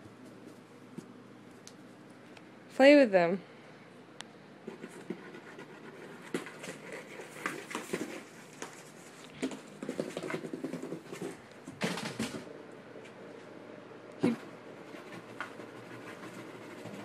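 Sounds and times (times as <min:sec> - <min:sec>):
cat claws scratching cardboard: 0:04.6 - 0:11.4, 0:14.8 - 0:17.0.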